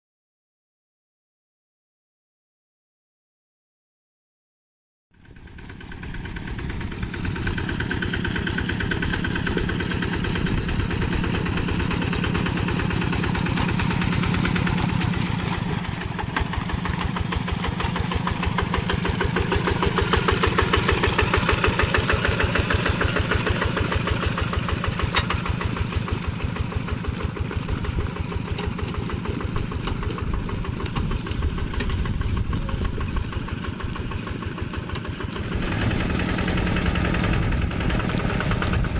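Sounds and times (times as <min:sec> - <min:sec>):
diesel engine chugging: 0:05.2 - 0:38.9.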